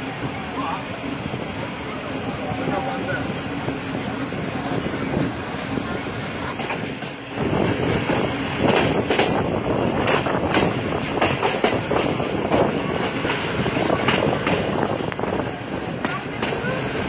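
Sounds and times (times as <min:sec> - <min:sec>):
train wheels rumbling on rail: 0:00.0 - 0:17.0
wheels clicking over rail joints: 0:06.3 - 0:17.0.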